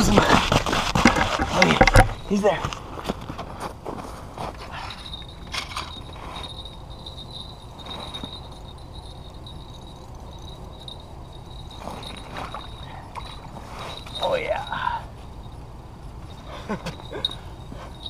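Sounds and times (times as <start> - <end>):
handling rustles and scrapes: 0.0 - 8.6, 11.6 - 14.5.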